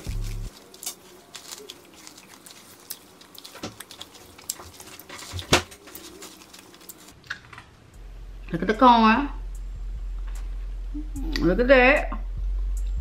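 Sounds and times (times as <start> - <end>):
chewing corn with crunches: 0.0 - 7.2.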